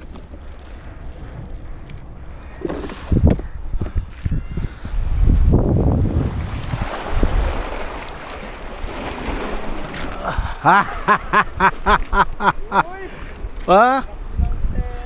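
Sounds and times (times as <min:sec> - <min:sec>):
wind buffeting microphone: 0:00.0 - 0:12.4, 0:13.1 - 0:15.0
sea waves washing against rocks: 0:05.3 - 0:13.6.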